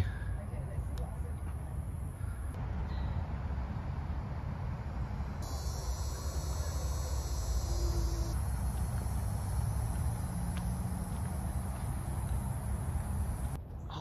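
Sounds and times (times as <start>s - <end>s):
insects buzzing chorus: 5.0s - 13.6s
loud insect buzz: 5.4s - 13.6s.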